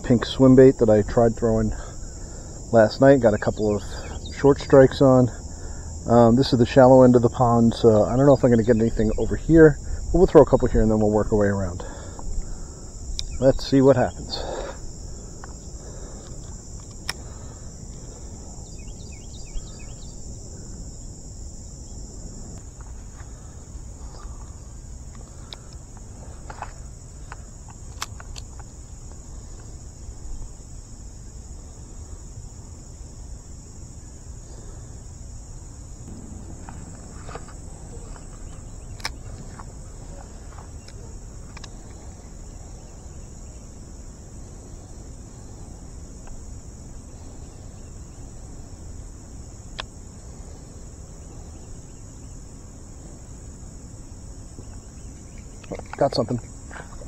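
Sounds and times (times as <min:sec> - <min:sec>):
high-pitched insect chorus: 0:00.0 - 0:57.0
sharp clicks: 0:13.1 - 0:13.4, 0:25.1 - 0:28.7, 0:38.1 - 0:39.7
low rumble: 0:36.0 - 0:38.2.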